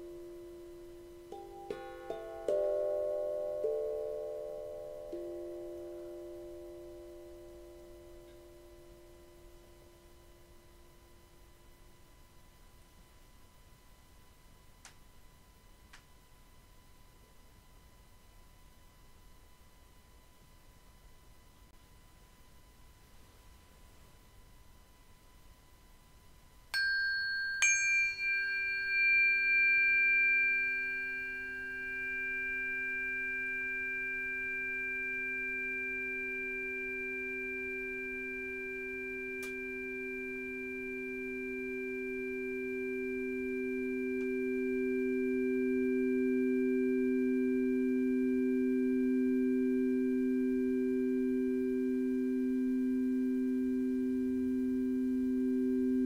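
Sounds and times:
metallic bowl strikes ringing: 0.0 - 10.2, 26.8 - 56.0
singing bowl rim hum: 0.0 - 22.9, 24.2 - 56.0.

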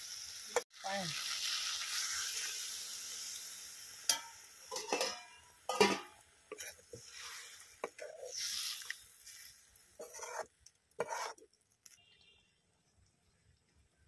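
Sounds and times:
ladle stirring in metal pan: 4.0 - 11.5.

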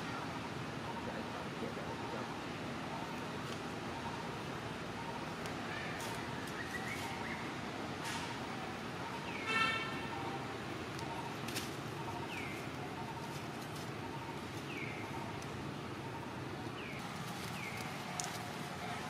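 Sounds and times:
bird chirping: 3.9 - 7.6, 8.4 - 19.0.

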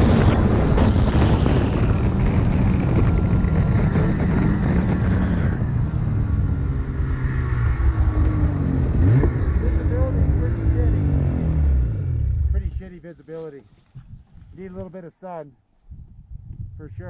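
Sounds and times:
wind noise: 0.0 - 13.1, 13.7 - 15.0, 15.8 - 17.0
snowmobile engine running: 0.0 - 13.2.

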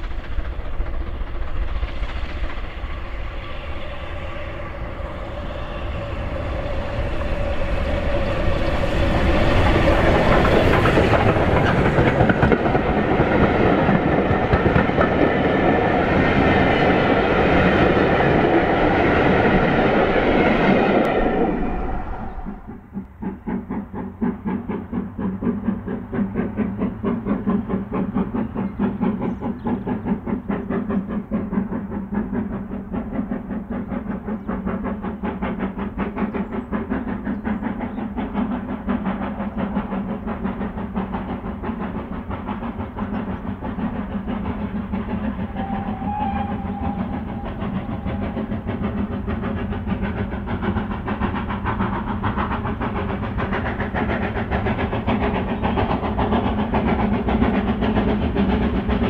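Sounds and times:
steam locomotive exhaust beats: 0.0 - 59.0.

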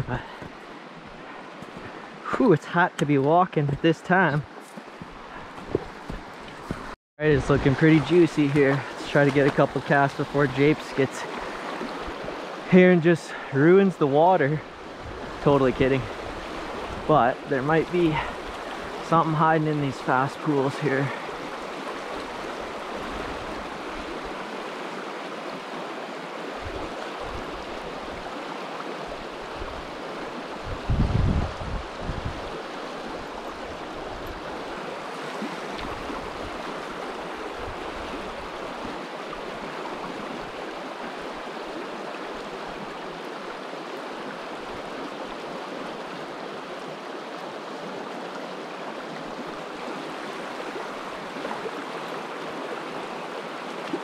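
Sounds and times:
river rushing over rocks: 31.8 - 54.0.

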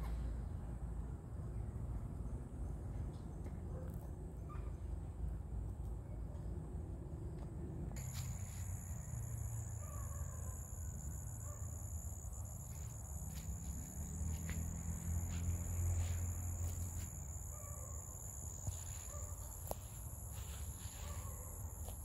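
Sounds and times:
insects trilling: 8.0 - 22.0.

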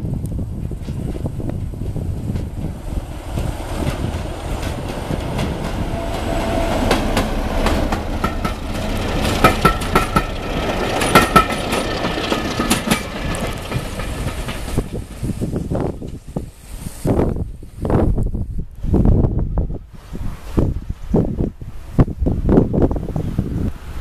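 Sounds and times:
diesel locomotive engine: 0.0 - 24.0
train wheels clacking over rail joints: 0.8 - 16.2.

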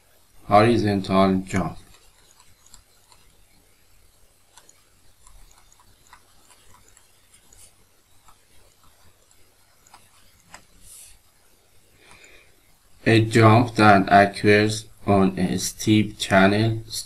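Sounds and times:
low steady hum: 0.0 - 17.0
stylus scratching on pen tablet: 1.5 - 12.3.

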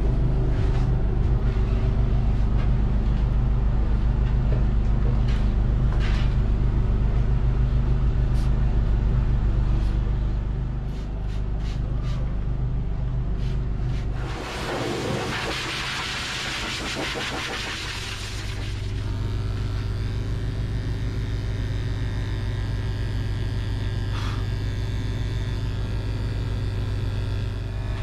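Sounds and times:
motor humming: 6.6 - 28.0
blow dryer rush of air: 13.4 - 19.5.

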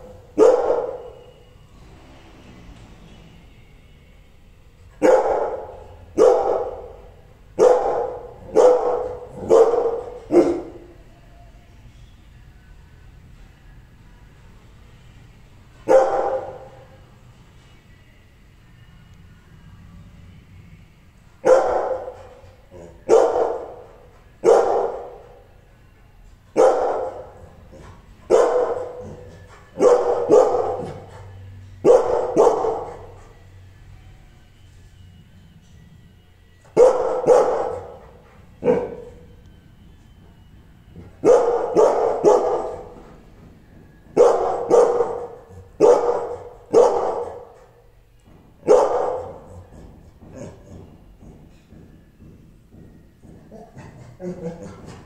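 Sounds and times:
dog barking: 0.0 - 1.2, 5.0 - 11.0, 15.8 - 17.0, 21.4 - 25.4, 26.5 - 33.4, 36.7 - 39.3, 41.2 - 43.1, 44.2 - 47.9, 48.6 - 51.3.

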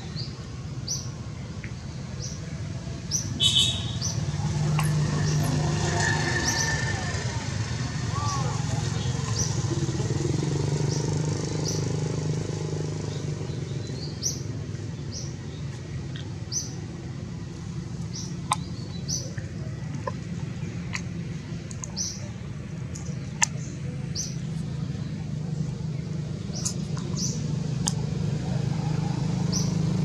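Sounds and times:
high bird chirps: 3.1 - 5.6
sharp clicks: 18.0 - 20.2, 20.8 - 22.1.

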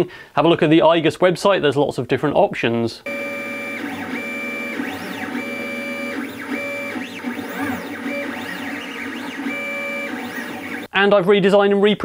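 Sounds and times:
printer stepper motors whining: 3.1 - 10.9.

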